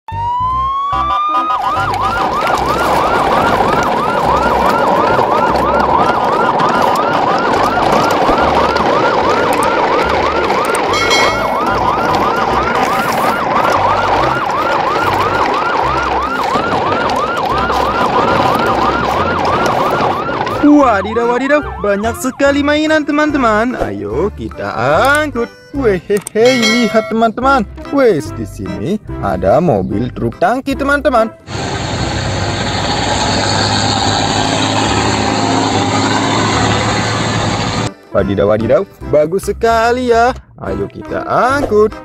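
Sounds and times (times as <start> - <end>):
electronic siren wailing and yelping: 0.1 - 23.0.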